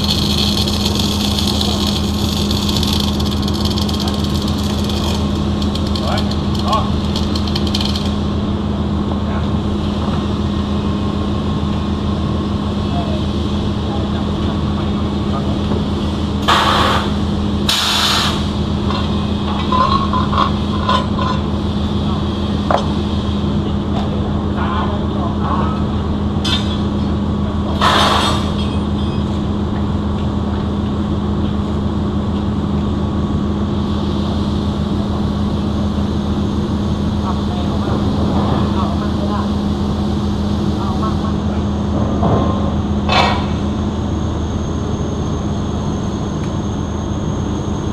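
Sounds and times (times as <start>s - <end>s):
welding arc crackle: 0.0s - 8.4s
low machine hum: 0.0s - 47.9s
burst of hiss: 17.7s - 18.5s.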